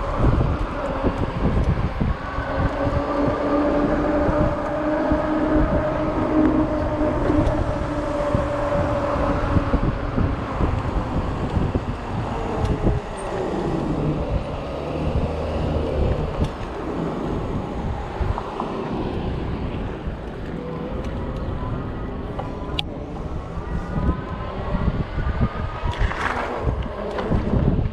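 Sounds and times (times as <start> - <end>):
electric bike motor hum: 0.0 - 27.9
wind noise on microphone: 0.0 - 27.9.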